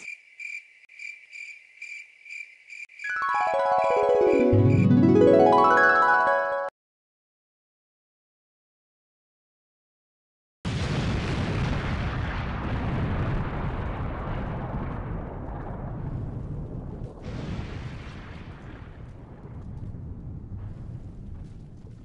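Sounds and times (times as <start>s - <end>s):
bomb explosion blast: 10.7s - 22.0s
deep rumble: 12.3s - 22.0s.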